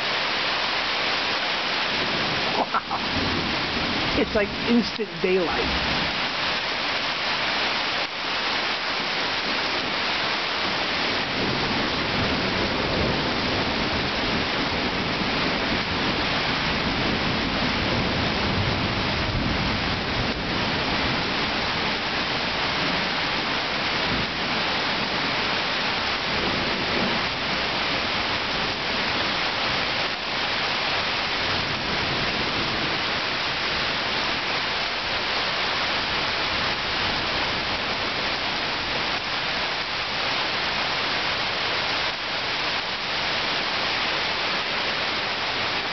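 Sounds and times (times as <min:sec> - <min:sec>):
heavy rain: 0:00.0 - 0:45.9
thunder rumbling: 0:01.8 - 0:06.4, 0:09.0 - 0:42.7.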